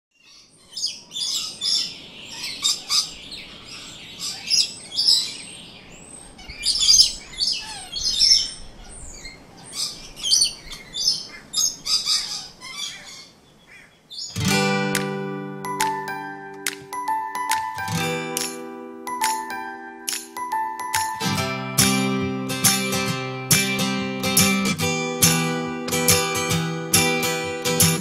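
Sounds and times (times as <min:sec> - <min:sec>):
parrots screeching and chattering: 0:06.3 - 0:13.9
music jingle: 0:14.4 - 0:28.0.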